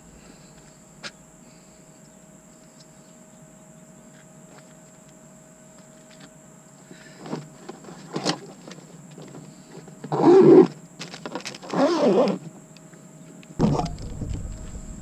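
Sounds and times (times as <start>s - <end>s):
faint high electronic whine: 12.9s - 15.0s.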